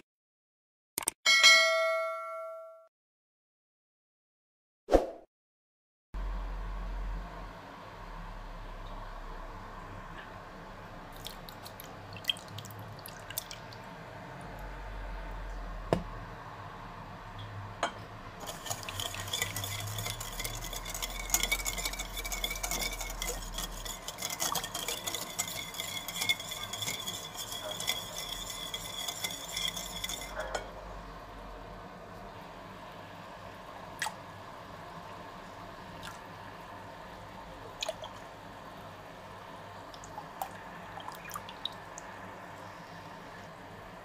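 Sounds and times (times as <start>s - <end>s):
fast whisking in metal bowl: 18.4s - 30.6s
whisk clinking on bowl: 18.4s - 30.7s.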